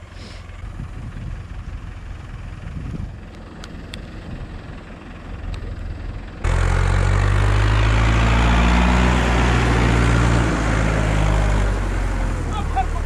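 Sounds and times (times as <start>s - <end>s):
tractor diesel engine idling: 0.0s - 7.9s, 9.5s - 13.0s
wind noise: 0.6s - 3.2s.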